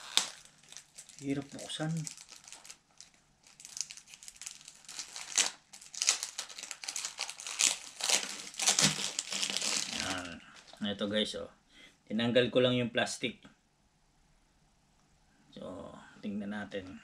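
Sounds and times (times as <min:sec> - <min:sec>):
plastic shrink-wrap crinkling: 0:00.0 - 0:10.8.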